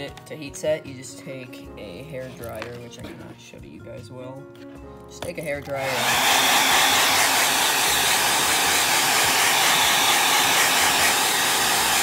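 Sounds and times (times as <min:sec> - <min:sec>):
hair dryer running: 0:05.7 - 0:12.0.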